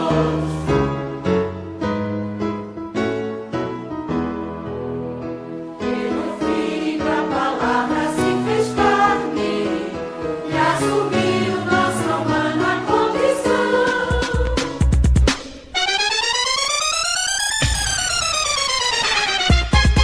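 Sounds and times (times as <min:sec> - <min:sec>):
voices singing with band: 0:00.0 - 0:00.7, 0:10.5 - 0:14.8
keyboard chords: 0:00.0 - 0:20.0.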